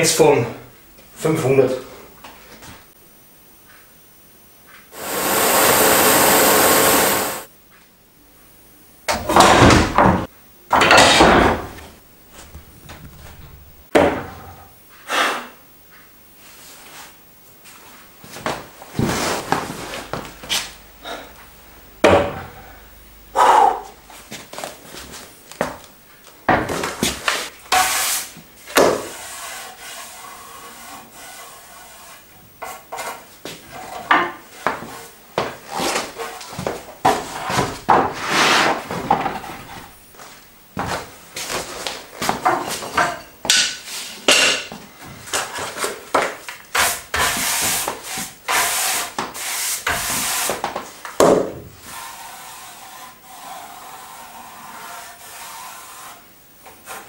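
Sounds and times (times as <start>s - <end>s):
hand brush sweeping wooden boards: 4.9s - 7.5s, 27.0s - 39.1s, 46.7s - 51.0s, 51.8s - 57.0s.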